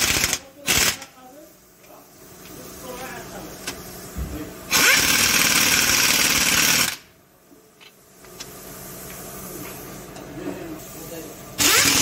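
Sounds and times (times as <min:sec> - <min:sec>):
impact wrench rattling: 0:04.7 - 0:07.0, 0:11.6 - 0:12.0.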